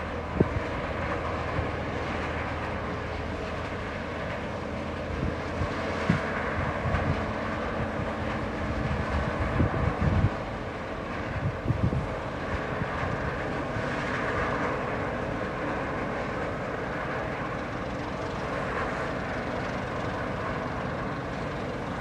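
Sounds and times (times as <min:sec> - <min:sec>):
ship engines droning: 0:00.0 - 0:22.0
wind buffeting microphone: 0:00.2 - 0:01.8, 0:05.0 - 0:14.2.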